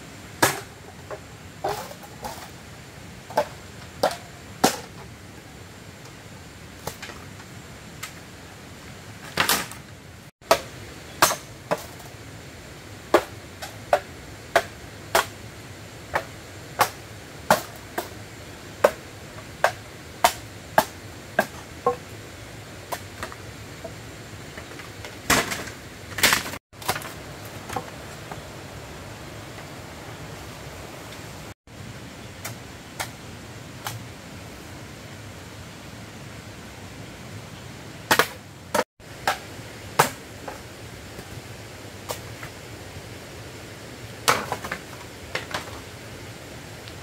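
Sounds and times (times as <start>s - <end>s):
machete chopping bamboo: 10.4s - 12.0s, 40.0s - 40.2s, 44.2s - 44.8s.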